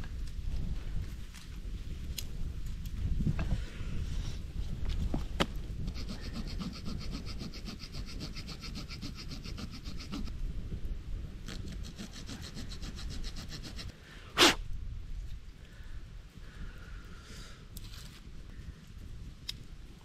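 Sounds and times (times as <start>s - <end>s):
hand tool rasping wood: 5.8s - 10.3s, 11.6s - 13.9s.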